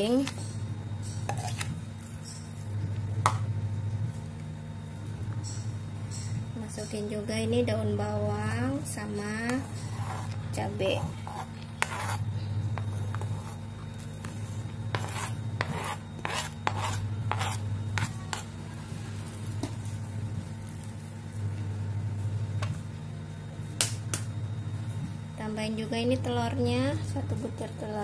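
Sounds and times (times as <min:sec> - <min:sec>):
steady low hum: 0:00.0 - 0:28.0
spoon scraping cutting board: 0:01.2 - 0:01.8, 0:09.5 - 0:18.5.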